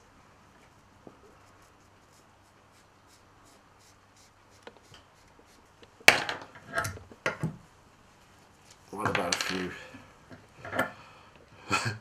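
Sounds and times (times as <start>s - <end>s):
pen scratching faintly: 0.6s - 5.9s.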